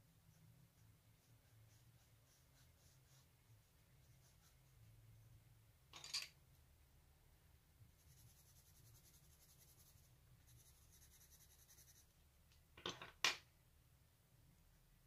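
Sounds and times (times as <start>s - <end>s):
pencil scratching on paper: 0.0s - 5.0s, 8.0s - 12.1s.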